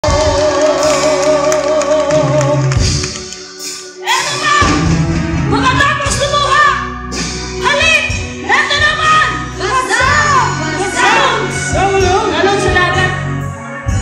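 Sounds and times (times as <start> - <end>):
women singing: 0.0 - 2.8
drums: 0.0 - 14.0.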